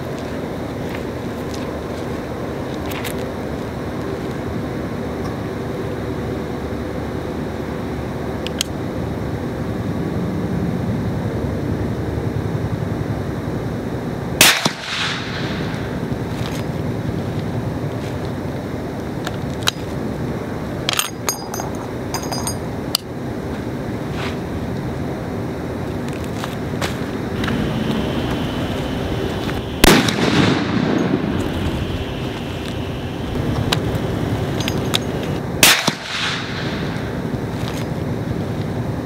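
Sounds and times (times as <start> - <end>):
suppressed rifle shot: 14.4 - 15.6, 29.8 - 31.3, 35.6 - 36.8.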